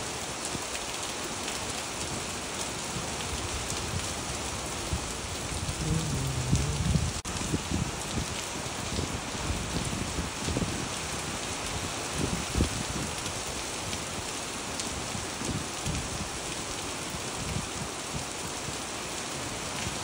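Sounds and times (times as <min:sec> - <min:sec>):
rain splashing on wet ground: 0:00.0 - 0:20.0.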